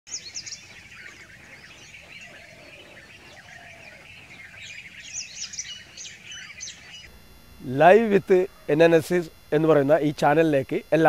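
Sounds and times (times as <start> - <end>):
low drawn-out bird call: 0.1 - 7.2
small birds chirping and trilling: 0.1 - 7.3.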